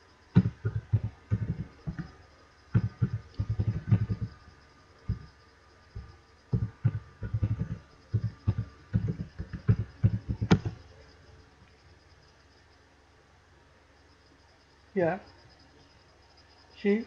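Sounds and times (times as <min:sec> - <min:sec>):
keyboard typing: 0:00.4 - 0:04.4, 0:06.0 - 0:10.8.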